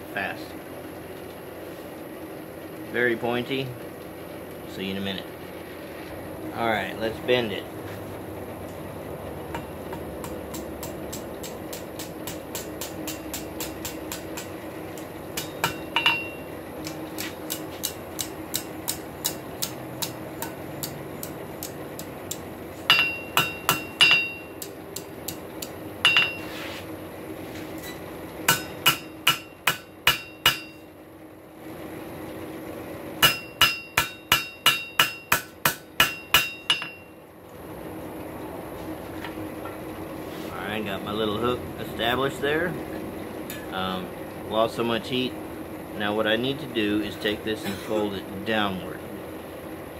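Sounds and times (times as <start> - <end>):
hammer striking metal on anvil: 9.5 - 26.5, 27.8 - 30.8, 33.2 - 37.2.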